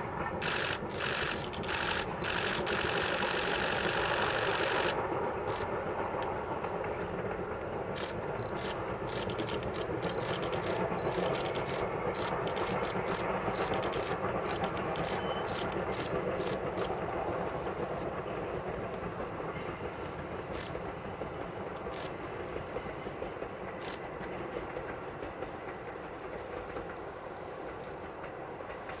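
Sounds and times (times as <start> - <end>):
distant steam locomotive rumble: 0.0 - 29.0
camera shutters clicking: 0.4 - 5.7, 8.0 - 16.9.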